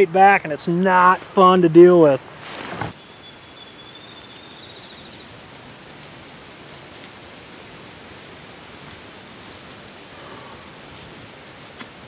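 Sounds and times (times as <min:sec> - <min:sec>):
outdoor background hiss: 0:00.0 - 0:12.0
faint high whistle: 0:03.0 - 0:05.2.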